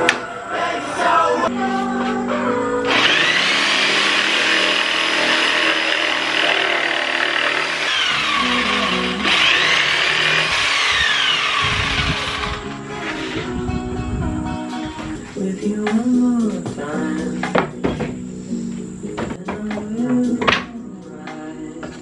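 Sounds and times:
background music: 0:00.0 - 0:22.0
jigsaw cutting wood: 0:02.9 - 0:13.5.

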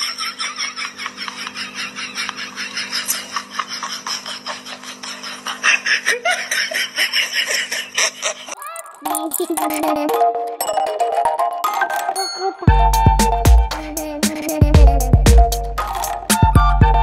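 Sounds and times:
people laughing: 0:00.0 - 0:10.0
music: 0:09.1 - 0:17.0.

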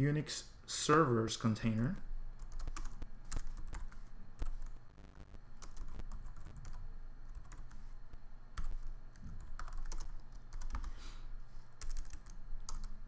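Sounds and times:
keyboard typing: 0:02.4 - 0:04.8, 0:05.6 - 0:07.9, 0:08.6 - 0:11.0, 0:11.8 - 0:13.0.

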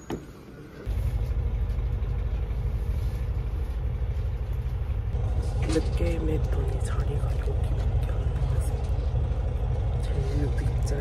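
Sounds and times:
coach engine rumble inside cabin: 0:00.1 - 0:11.0.

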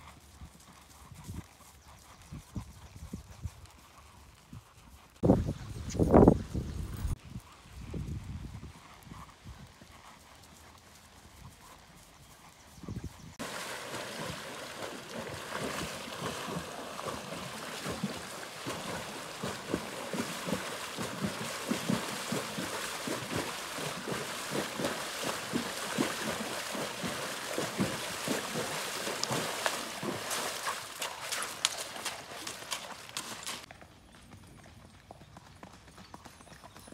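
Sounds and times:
horse hoofbeats on grass: 0:00.0 - 0:36.9
hooves splashing in water: 0:13.4 - 0:33.7
hooves on gravel: 0:13.4 - 0:36.9.

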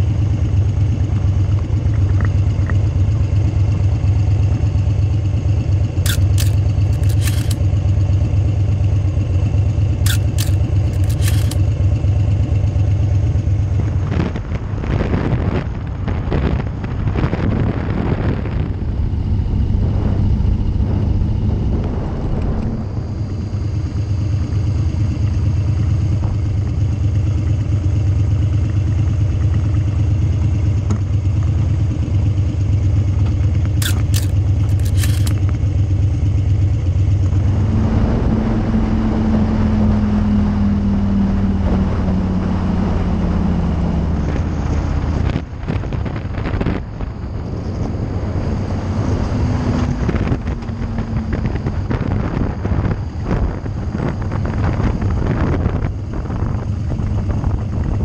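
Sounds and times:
motorcycle engine running: 0:00.0 - 0:40.0, 0:40.7 - 0:58.0
wind noise on microphone: 0:13.3 - 0:25.1, 0:37.3 - 0:58.0.

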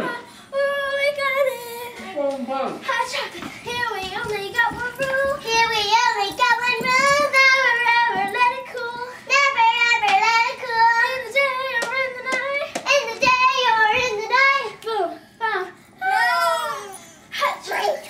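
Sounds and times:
girl singing in a high voice: 0:00.0 - 0:02.2, 0:02.8 - 0:15.8.

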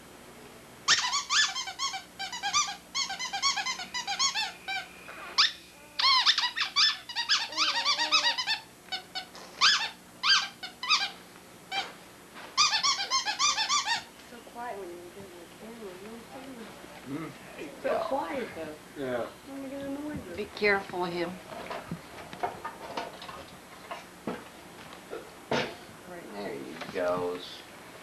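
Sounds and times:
rapid high-pitched squeaking: 0:00.9 - 0:11.9, 0:12.6 - 0:14.1.

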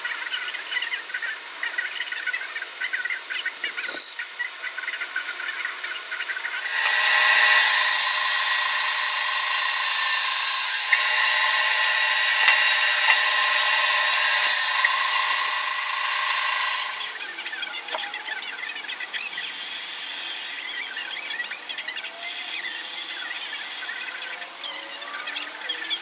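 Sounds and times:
band saw cutting wood: 0:06.5 - 0:18.3.

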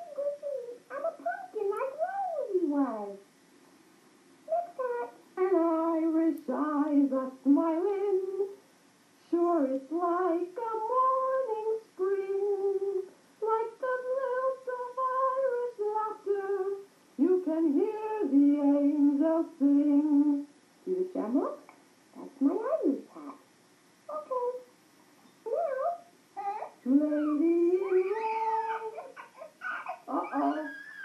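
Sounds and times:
woman singing wordless tune: 0:04.5 - 0:08.6, 0:09.2 - 0:21.5, 0:26.8 - 0:29.1, 0:30.1 - 0:30.8.

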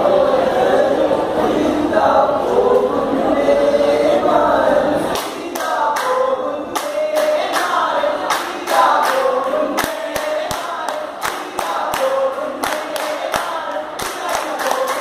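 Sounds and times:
group of men singing: 0:00.0 - 0:15.0
rhythmic hand clapping: 0:05.1 - 0:15.0.

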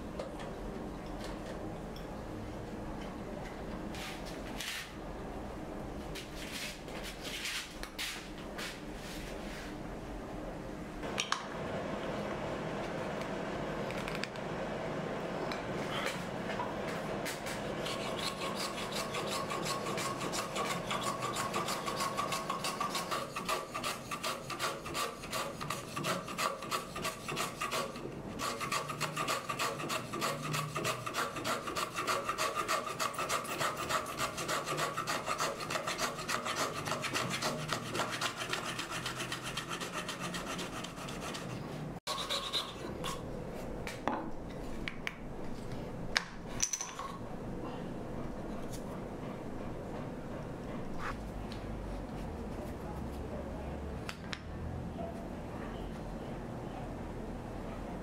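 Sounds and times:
hand plane shaving wood: 0:17.4 - 0:42.8.

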